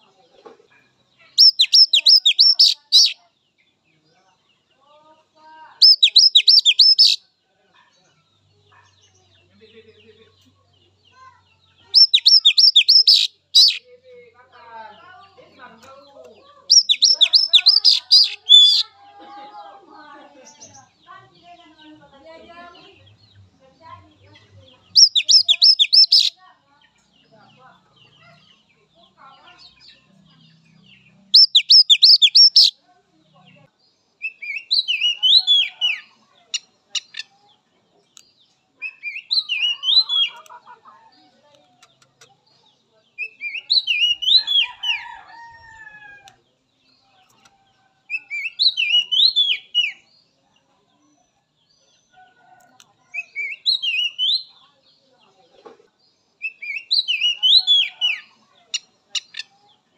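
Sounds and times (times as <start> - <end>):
bird singing whistled phrase: 1.4 - 3.2, 5.8 - 7.2, 12.0 - 13.8, 16.7 - 18.8, 25.0 - 26.3, 31.4 - 32.7.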